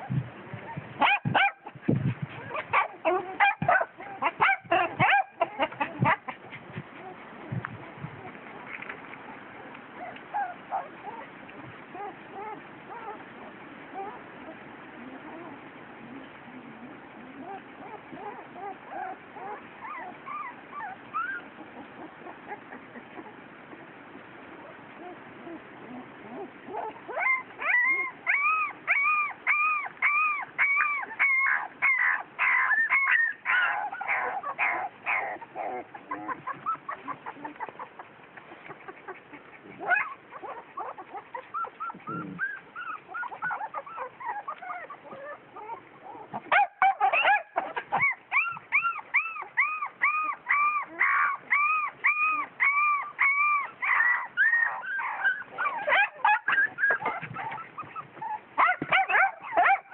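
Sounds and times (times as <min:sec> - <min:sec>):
small dog yapping: 0:00.0 - 0:06.4, 0:39.8 - 0:59.9.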